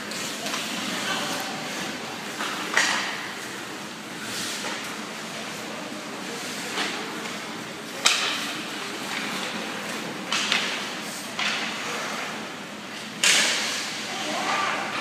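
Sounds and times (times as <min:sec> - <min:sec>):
puck and sticks hitting boards: 0:02.0 - 0:03.8, 0:08.0 - 0:12.4, 0:13.2 - 0:14.0.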